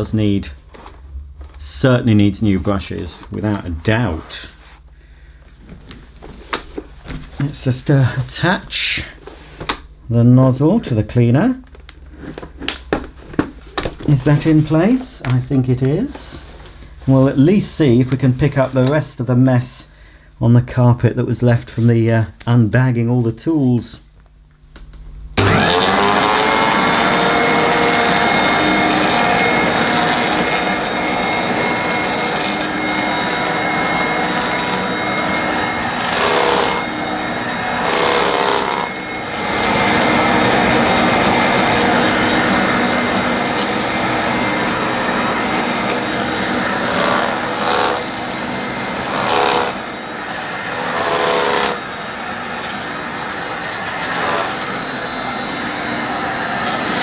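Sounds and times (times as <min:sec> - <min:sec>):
vacuum cleaner motor whining: 0:25.4 - 0:57.0.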